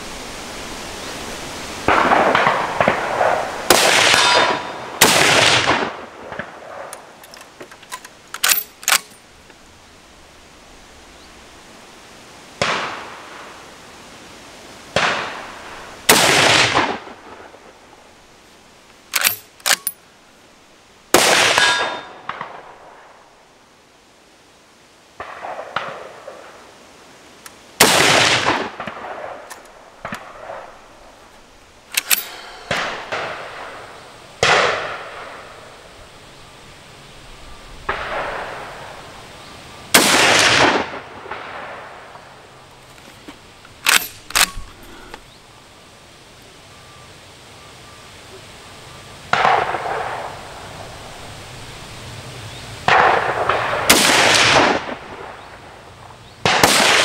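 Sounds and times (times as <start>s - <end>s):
rifle shots echoing: 1.9s - 7.2s, 16.1s - 17.5s, 21.1s - 22.7s, 27.8s - 30.8s, 31.9s - 35.6s, 39.9s - 42.0s, 49.3s - 50.3s, 52.9s - 55.5s, 56.4s - 57.0s
rifle bolt metallic clicks: 6.9s - 9.2s, 19.1s - 20.0s, 29.5s - 29.7s, 31.9s - 32.9s, 43.7s - 45.2s.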